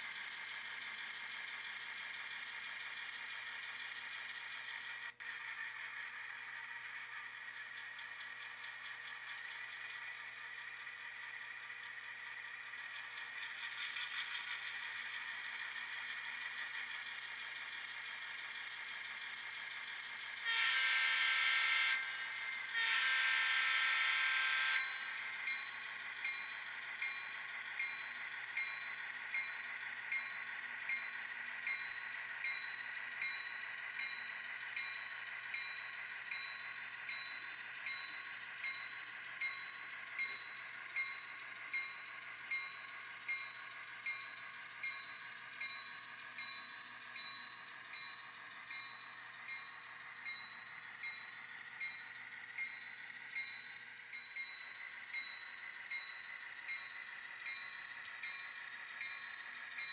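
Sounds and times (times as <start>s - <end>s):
diesel engine running sound: 0.0s - 59.9s
locomotive bell ringing: 0.0s - 59.9s
model locomotive horn blasts: 20.3s - 25.9s.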